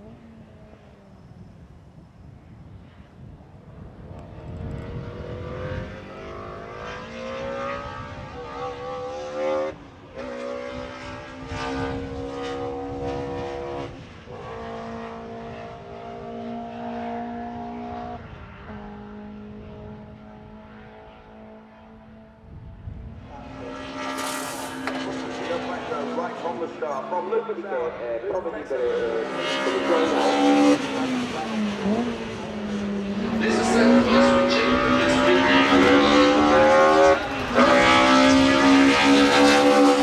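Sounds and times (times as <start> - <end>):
race car engine accelerating: 23.2 - 40.0.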